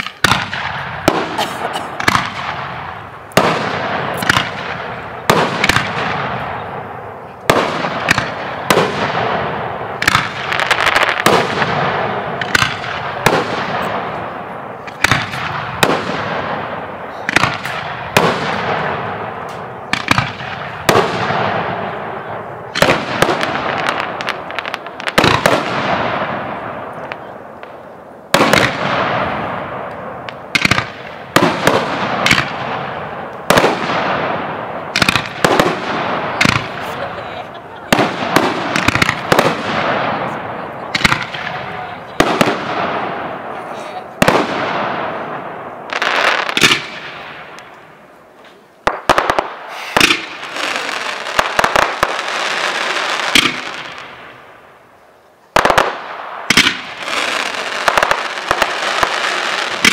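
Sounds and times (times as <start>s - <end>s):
firework shells bursting: 48.8s - 52.3s.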